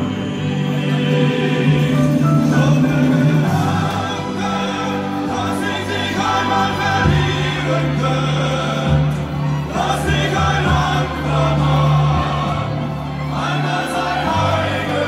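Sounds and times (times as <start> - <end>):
sustained bass notes: 0.0 - 15.0
voices singing in chorus: 0.0 - 15.0.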